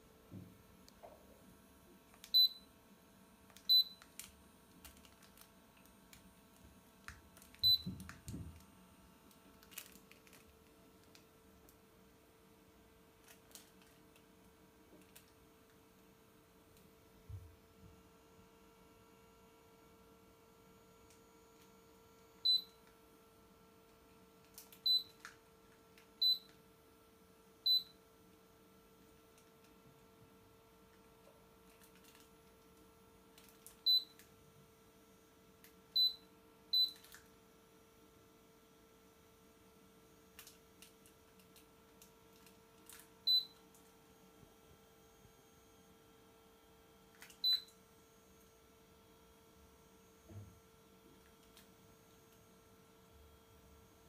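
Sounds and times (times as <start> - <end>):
humidifier control panel beeps: 2.2 - 2.7, 3.6 - 4.1, 7.4 - 8.6, 22.4 - 22.9, 24.7 - 25.3, 26.2 - 26.6, 27.6 - 28.0, 33.8 - 34.2, 35.9 - 37.2, 43.2 - 43.6, 47.2 - 47.8.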